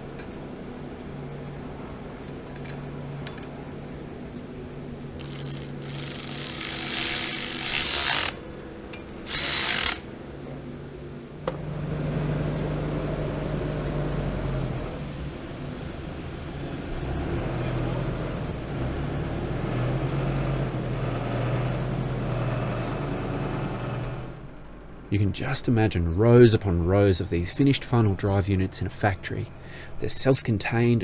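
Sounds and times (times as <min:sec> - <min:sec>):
engine humming low: 0:00.0 - 0:31.0
cordless power ratchet running nuts: 0:05.2 - 0:08.4, 0:09.3 - 0:10.1.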